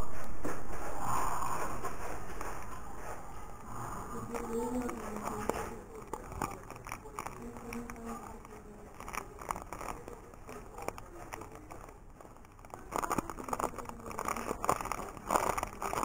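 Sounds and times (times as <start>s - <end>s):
plastic sachet crinkling: 3.6s - 16.0s.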